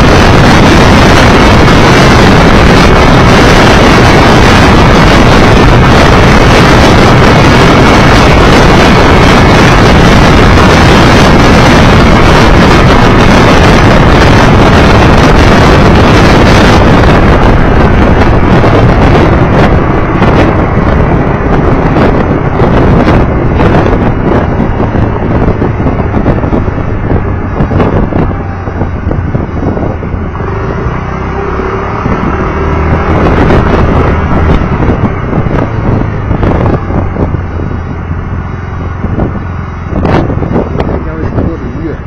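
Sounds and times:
motorcycle engine rumble: 0.0s - 42.0s
road rumble: 0.0s - 42.0s
wind buffeting microphone: 0.0s - 42.0s.

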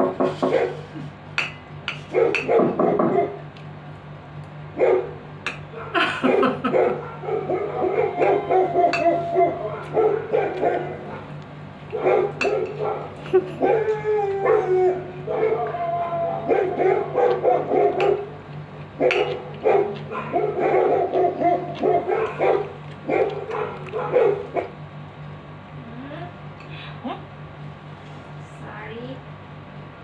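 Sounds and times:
dog barking and yipping: 2.1s - 3.4s, 4.8s - 13.8s, 16.5s - 18.3s, 19.0s - 24.8s.

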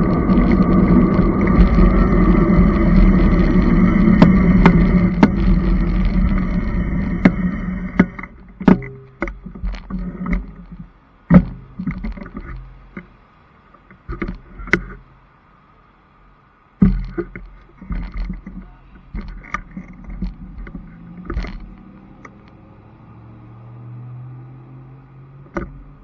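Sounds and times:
electric motor whine: 0.0s - 8.3s
sharp clicks and knocks: 0.0s - 15.1s, 16.8s - 22.7s, 25.4s - 26.0s
wind and tyre noise: 0.0s - 26.0s.

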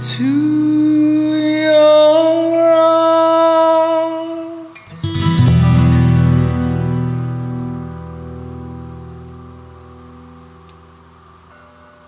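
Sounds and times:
person singing long note: 0.0s - 4.8s
acoustic guitar strumming: 0.0s - 12.0s.

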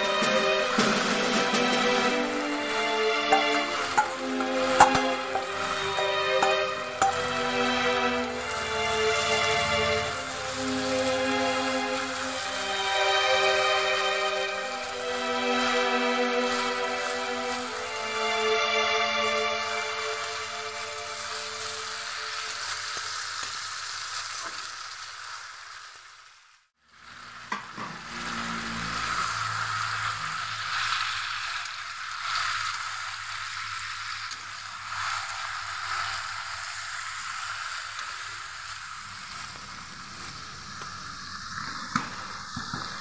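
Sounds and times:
spices sizzling in a pan: 0.0s - 43.0s
metal spatula scraping pan: 2.6s - 8.3s.

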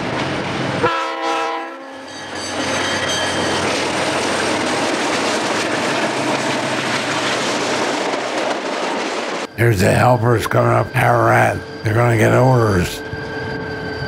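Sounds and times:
freight train passing: 0.0s - 14.0s
locomotive horn blast: 0.8s - 2.1s.

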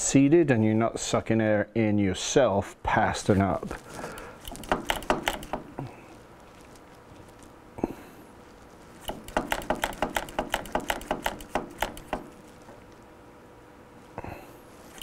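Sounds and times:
sharp clicks of brake fitting: 4.1s - 5.7s, 9.0s - 12.3s.

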